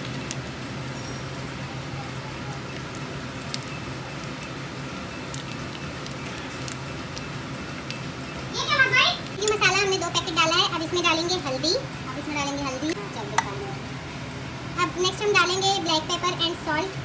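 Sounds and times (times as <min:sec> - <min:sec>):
steady low hum: 0:00.0 - 0:17.0
foil sachet crinkling: 0:02.4 - 0:07.9.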